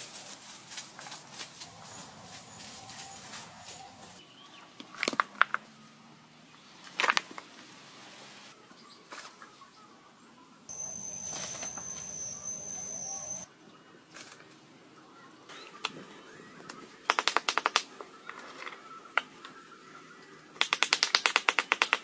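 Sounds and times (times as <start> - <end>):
high-pitched insect drone: 10.7 - 13.5
sharp clicks: 15.5 - 16.1, 16.7 - 18.1, 20.5 - 22.0.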